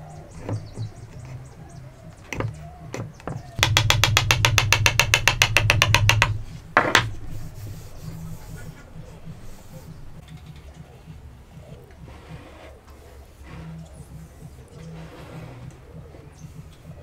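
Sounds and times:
hammer knocking wooden joint: 2.3s - 7.2s.

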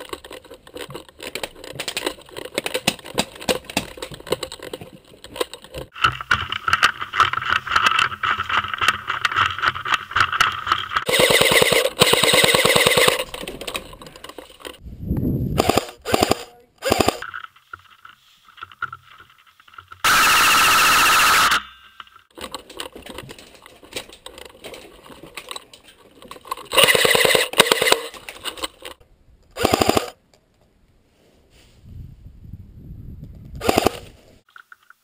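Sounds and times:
airsoft guns firing full auto: 11.1s - 13.3s, 15.6s - 17.2s, 26.8s - 28.1s, 29.6s - 30.2s.

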